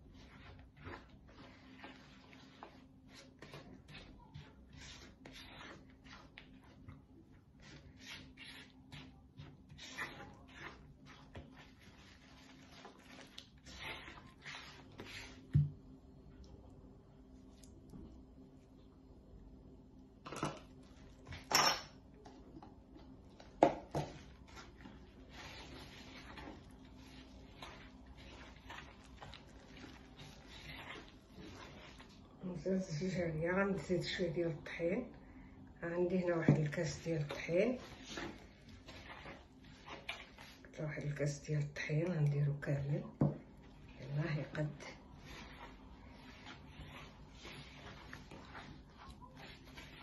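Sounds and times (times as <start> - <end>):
spatula scraping dough in bowl: 0.0 - 15.7, 23.4 - 34.9, 36.1 - 50.0
plastic tub being handled: 43.0 - 50.0.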